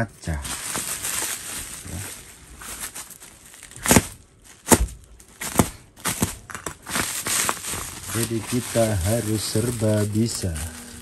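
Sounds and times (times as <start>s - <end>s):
glass cutting through bubble wrap: 3.6s - 11.0s.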